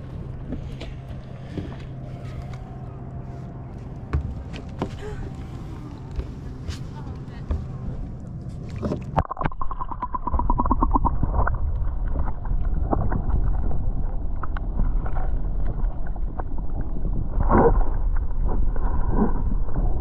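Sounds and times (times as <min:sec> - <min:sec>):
underwater rush of water: 0:08.7 - 0:20.0.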